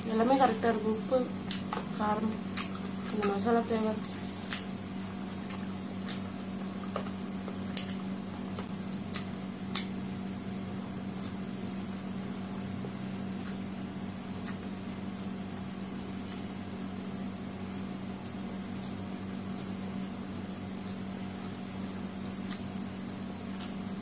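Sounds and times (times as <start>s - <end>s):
steady background hum: 0.0s - 24.0s
chewing food: 1.4s - 10.0s.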